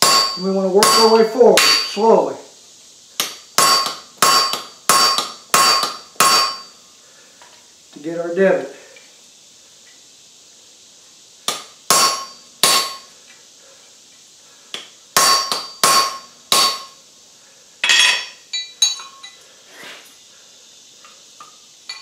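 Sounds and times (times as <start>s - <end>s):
hammer striking metal on anvil: 0.0s - 2.0s, 3.2s - 6.7s, 11.5s - 13.1s, 15.2s - 17.0s, 17.8s - 19.3s.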